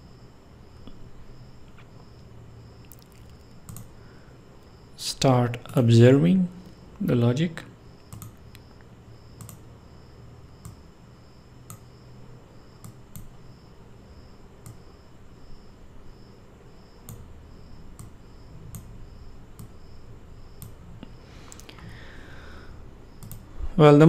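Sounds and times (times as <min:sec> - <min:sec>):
faint low hum: 0:00.0 - 0:24.0
computer mouse clicks: 0:02.9 - 0:03.9, 0:08.0 - 0:08.6, 0:09.4 - 0:09.6, 0:10.6 - 0:10.8, 0:11.7 - 0:11.9, 0:12.8 - 0:13.4, 0:14.6 - 0:14.8, 0:17.0 - 0:17.3, 0:18.0 - 0:18.9, 0:19.6 - 0:19.8, 0:20.6 - 0:20.8, 0:23.2 - 0:23.5.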